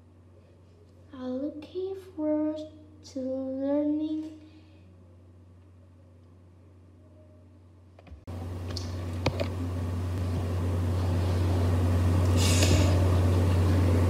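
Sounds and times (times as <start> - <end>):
low electrical hum: 0.0 - 14.0
short hiss: 12.3 - 13.0.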